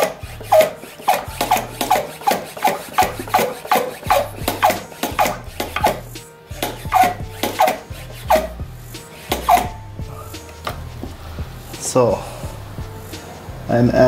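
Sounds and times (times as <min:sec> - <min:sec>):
hand pump strokes: 0:00.0 - 0:10.5.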